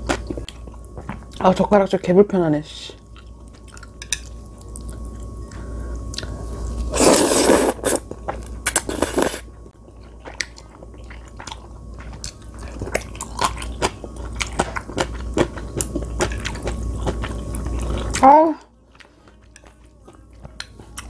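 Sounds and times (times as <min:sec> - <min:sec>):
noisy noodle slurps: 0:06.9 - 0:08.0
wet chewing clicks and crunches: 0:10.2 - 0:18.2.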